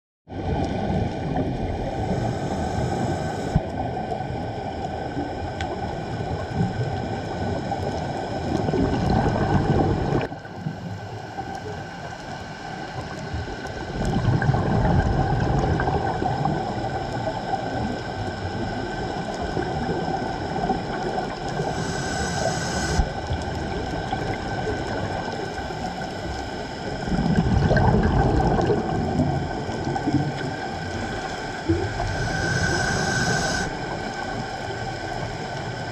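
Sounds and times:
bubbles rumbling: 0.3s - 22.4s, 23.0s - 35.9s
steady underwater wash: 0.3s - 35.9s
scuba regulator breathing: 1.8s - 3.7s, 21.5s - 23.2s, 29.4s - 35.1s.

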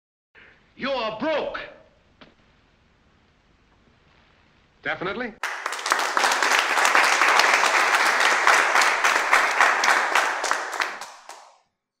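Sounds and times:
audience applause: 5.4s - 11.6s.

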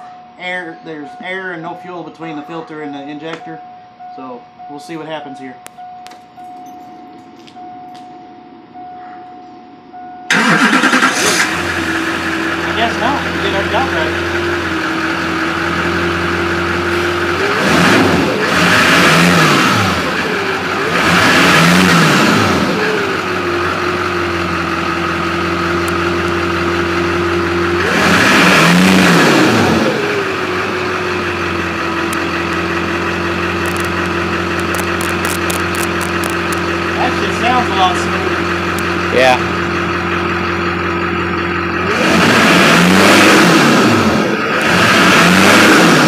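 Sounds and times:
diesel engine idling and revving: 9.9s - 46.0s.

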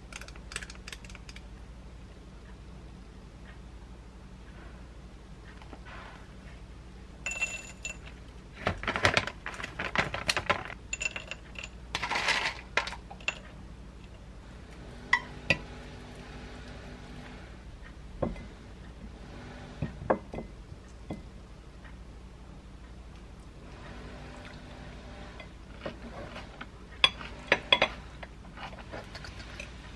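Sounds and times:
metal spoon clinking in glass bowl: 7.3s - 8.1s, 10.9s - 11.8s.

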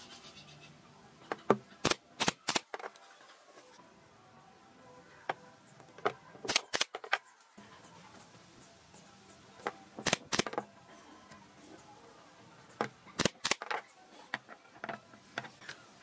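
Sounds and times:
nail gun firing into wood: 1.8s - 2.8s, 6.5s - 7.1s, 10.0s - 10.6s, 13.2s - 13.8s.

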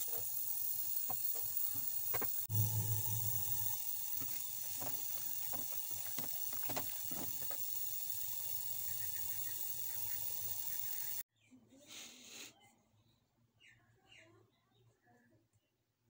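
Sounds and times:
low hum: 0.0s - 11.2s
pot of water hissing on stove: 0.0s - 11.2s.

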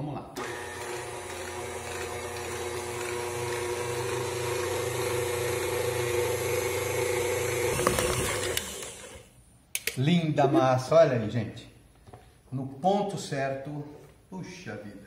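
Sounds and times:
stand mixer whisking dough: 0.4s - 9.2s.

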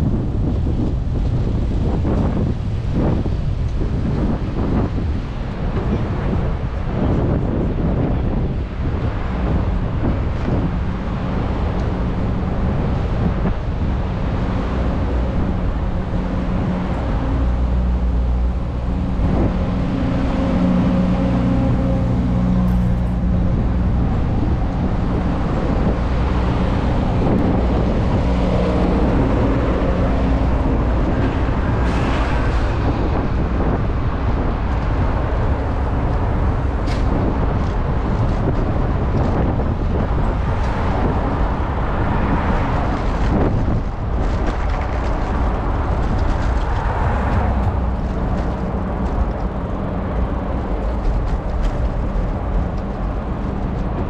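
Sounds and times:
road traffic: 0.0s - 54.0s
vehicle engine hum: 0.0s - 54.0s
wind noise from bicycle riding: 0.0s - 54.0s.

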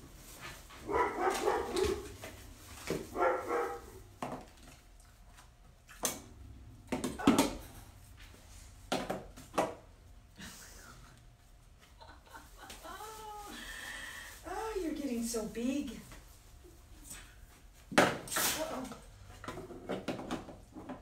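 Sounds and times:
dog barking and yipping: 0.8s - 2.2s, 3.1s - 4.0s.

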